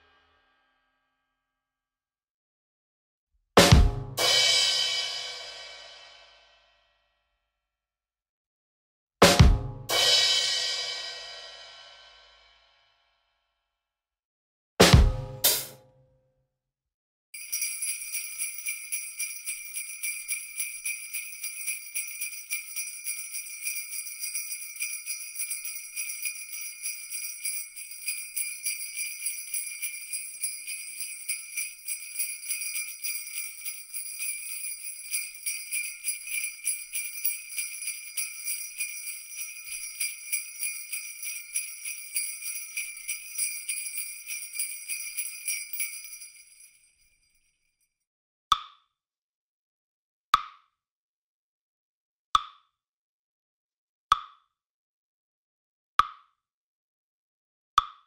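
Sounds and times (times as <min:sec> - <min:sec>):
jingle bells shaken: 0:17.4 - 0:47.4.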